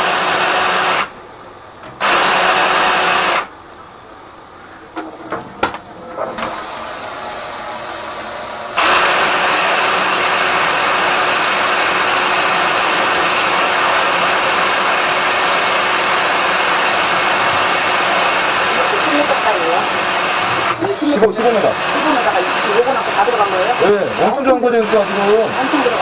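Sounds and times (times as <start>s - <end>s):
drain-cleaning machine motor: 5.0s - 26.0s
loud motor whooshing and whining: 6.3s - 26.0s.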